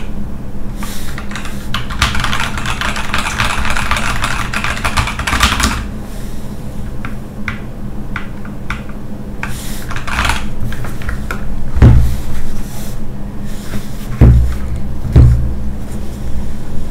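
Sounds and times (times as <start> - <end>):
keyboard handling rustle: 8.8 - 11.4
heavy thumps on desk: 11.8 - 12.2, 14.1 - 15.6.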